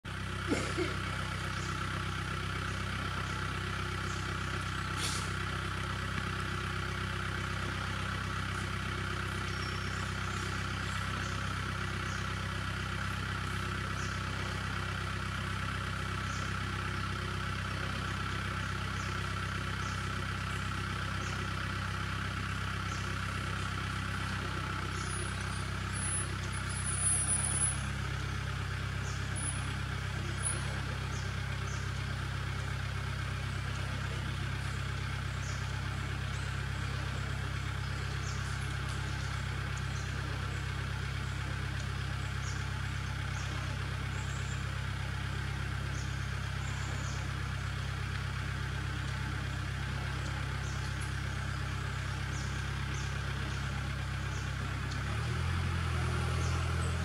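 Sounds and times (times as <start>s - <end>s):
low mechanical hum: 0.0s - 57.0s
high-pitched bird calls: 9.3s - 12.3s.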